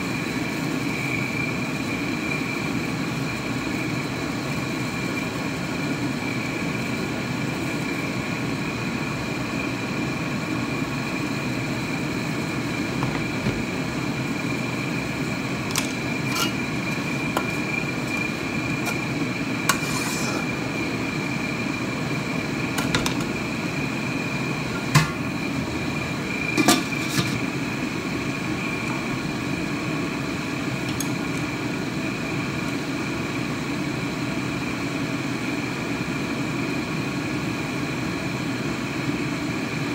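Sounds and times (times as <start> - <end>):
metal spatula scraping in a wok: 15.7 - 17.7, 18.8 - 20.6.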